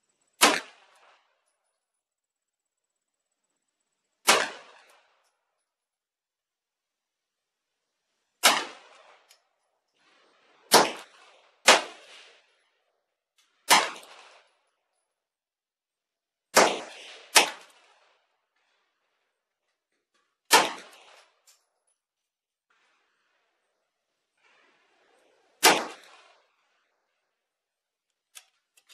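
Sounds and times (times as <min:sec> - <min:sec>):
pistol shots: 0:00.4 - 0:01.3, 0:04.2 - 0:05.2, 0:08.4 - 0:09.4, 0:10.7 - 0:12.4, 0:13.6 - 0:14.5, 0:16.5 - 0:18.1, 0:20.5 - 0:21.5, 0:24.9 - 0:26.5.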